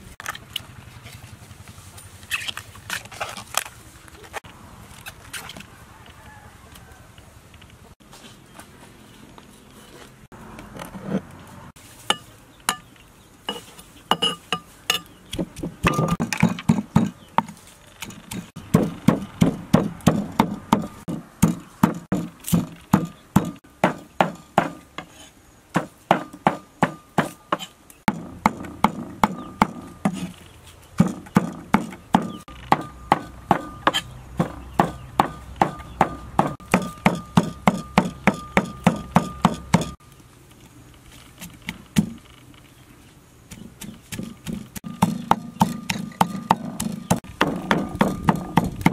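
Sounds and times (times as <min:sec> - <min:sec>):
cleaver chopping meat on wooden board: 0:15.0 - 0:24.8, 0:25.8 - 0:30.3, 0:31.0 - 0:40.0, 0:43.5 - 0:48.9.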